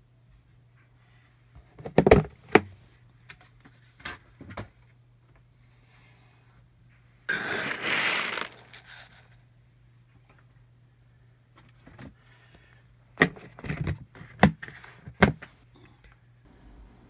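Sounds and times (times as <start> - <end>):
dry beans rattling in plastic tub: 7.3 - 9.4.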